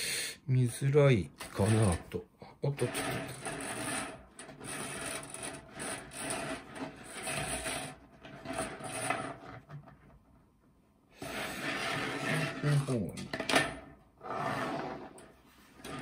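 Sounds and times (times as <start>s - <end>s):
copper wire scraping on wood: 1.4s - 9.9s, 11.2s - 13.1s, 14.2s - 16.0s.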